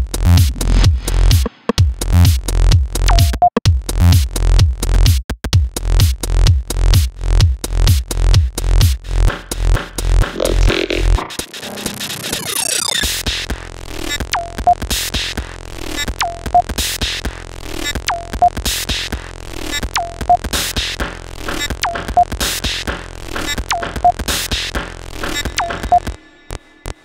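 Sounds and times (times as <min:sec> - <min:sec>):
electronic music beat: 0:03.0 - 0:03.6, 0:09.8 - 0:13.2, 0:21.6 - 0:22.6, 0:25.3 - 0:27.0
falling sweeping tone: 0:10.5 - 0:13.1.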